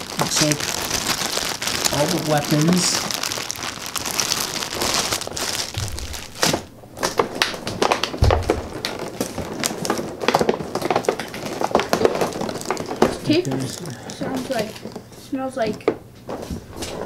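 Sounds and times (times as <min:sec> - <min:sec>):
plastic bag crinkling: 0:00.0 - 0:15.2
dull thumps: 0:05.4 - 0:06.7, 0:08.1 - 0:09.0.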